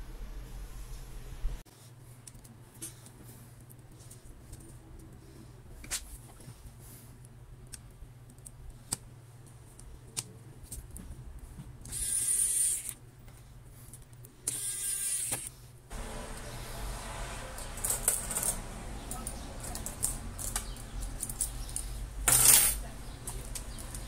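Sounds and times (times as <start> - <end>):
electric screwdriver driving screws: 11.9 - 13.0, 14.5 - 15.5.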